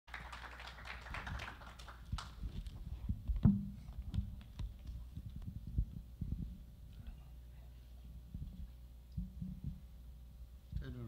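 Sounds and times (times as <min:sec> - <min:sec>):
microphone handling thumps: 0:02.4 - 0:07.0, 0:08.3 - 0:10.0.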